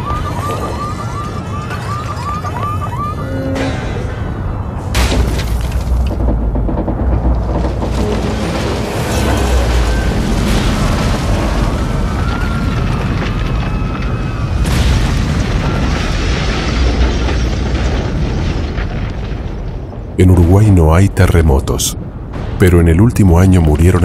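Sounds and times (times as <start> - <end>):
loud crash: 3.5 - 20.1
deep rumble of shaking ground: 4.0 - 21.4
collapsing masonry: 4.9 - 21.5.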